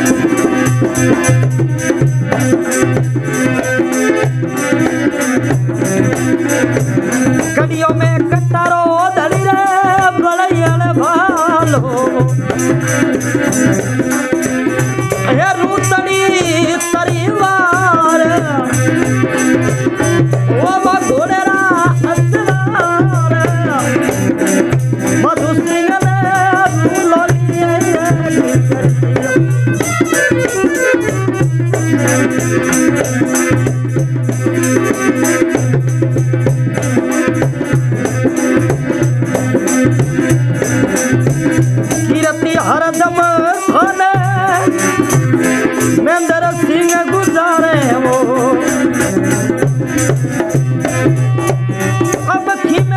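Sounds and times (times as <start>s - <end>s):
hand drum and jingles rhythm: 0.0s - 52.9s.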